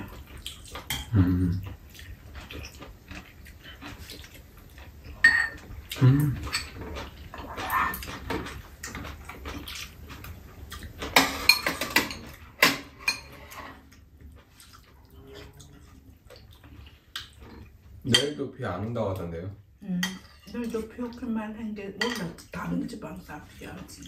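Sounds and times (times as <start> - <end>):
utensils clinking on ceramic bowls: 5.2 - 5.7, 6.4 - 8.6, 11.1 - 13.7, 22.0 - 22.8.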